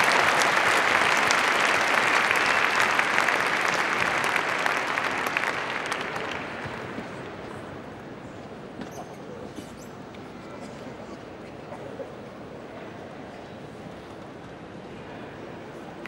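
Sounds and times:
crowd applauding: 0.0 - 7.4.

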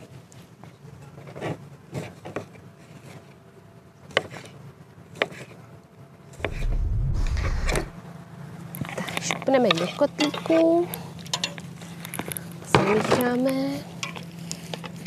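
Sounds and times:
low rumble: 6.4 - 8.0.

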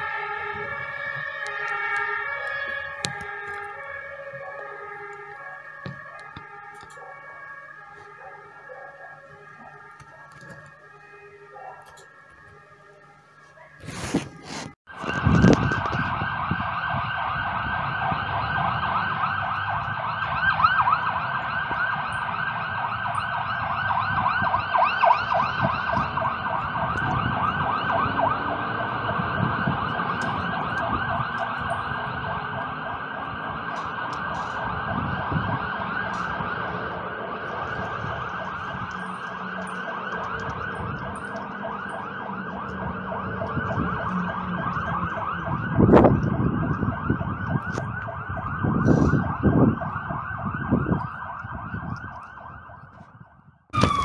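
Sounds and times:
fire engine siren warbling: 0.0 - 54.0
truck engine rumbling: 25.3 - 51.8.

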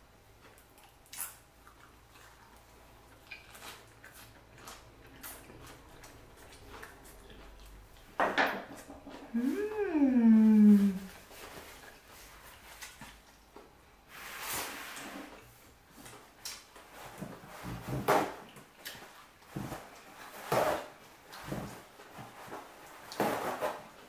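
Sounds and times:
noodles slurped and chewed: 0.4 - 8.2.

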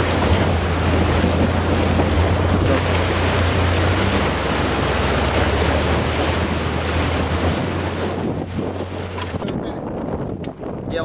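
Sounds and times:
engine low drone: 0.0 - 9.6
wind on microphone: 0.0 - 11.0.

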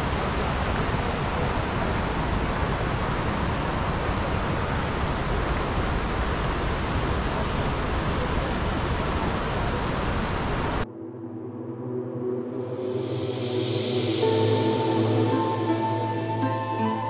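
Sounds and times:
river water rushing over rocks: 0.0 - 10.8.

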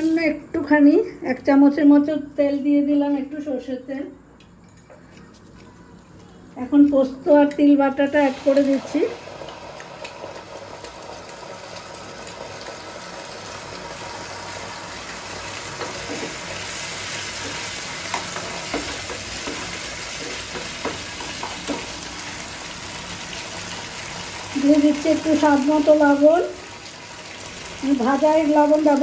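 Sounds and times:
paste sizzling in hot oil: 8.0 - 29.0
metal spoon scraping and tapping pan: 17.4 - 22.0.

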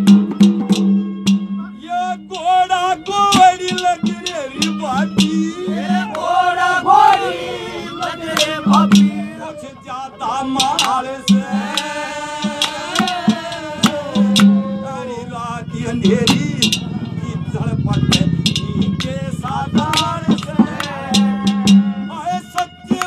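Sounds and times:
hand drum strokes: 0.0 - 1.7, 2.3 - 7.3, 8.3 - 9.4, 10.6 - 23.0
man singing folk song: 1.6 - 6.5, 7.9 - 23.0.

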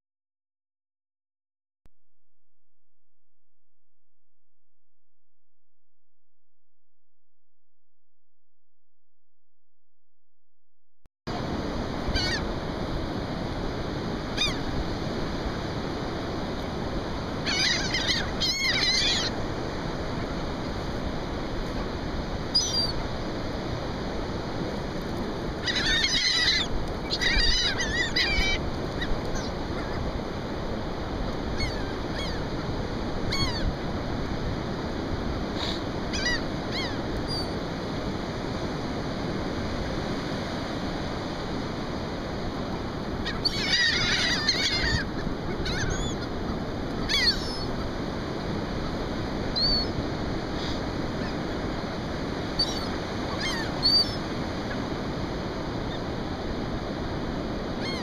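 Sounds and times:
wind: 11.3 - 58.0
gulls squawking: 12.1 - 12.5, 17.4 - 19.4, 22.5 - 23.0, 25.6 - 30.1, 31.5 - 33.8, 35.6 - 37.6, 43.2 - 47.9, 49.6 - 50.0, 52.6 - 54.9.

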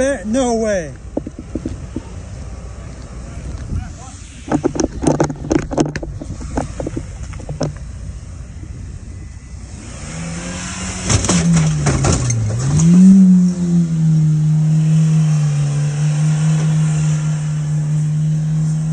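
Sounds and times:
car engine revving: 1.0 - 18.9
car bouncing over track rattles: 11.0 - 12.9.

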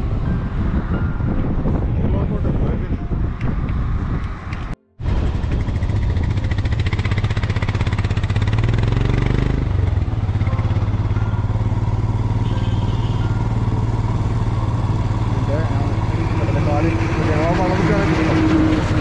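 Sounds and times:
motorcycle engine running: 5.1 - 19.0.

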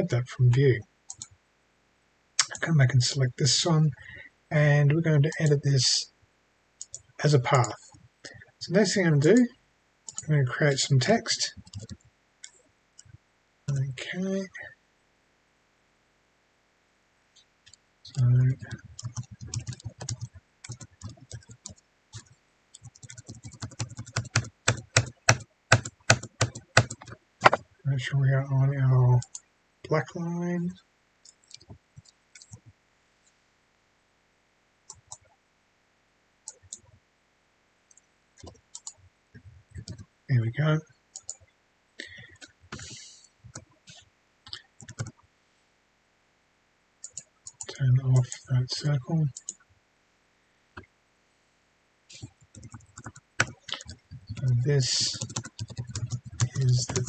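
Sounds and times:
computer mouse clicking: 1.1 - 1.3, 6.8 - 7.8, 10.1 - 10.3, 11.6 - 13.2, 18.6 - 27.6, 31.2 - 32.7, 36.5 - 36.9, 37.9 - 39.0, 39.8 - 40.0, 41.1 - 41.5, 42.3 - 45.2, 47.0 - 48.4, 52.2 - 57.0.

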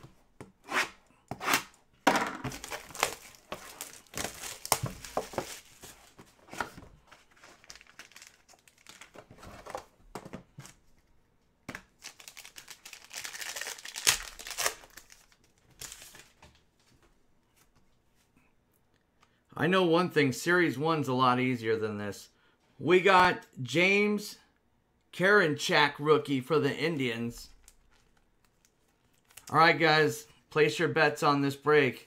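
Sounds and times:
plastic wrap crinkling and tearing: 2.5 - 6.2, 7.1 - 9.7, 11.9 - 16.4, 27.6 - 29.5.

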